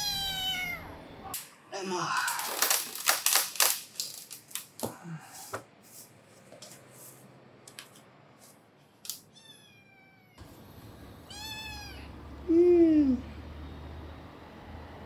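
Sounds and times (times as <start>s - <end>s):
cat meowing: 0.0s - 1.0s, 9.3s - 10.4s, 11.3s - 12.1s.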